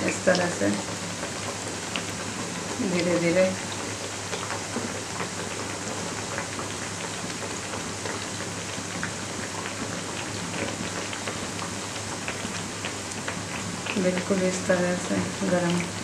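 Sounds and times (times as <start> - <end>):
food deep-frying in hot oil: 0.0 - 16.0
oil crackling and popping: 3.4 - 16.0.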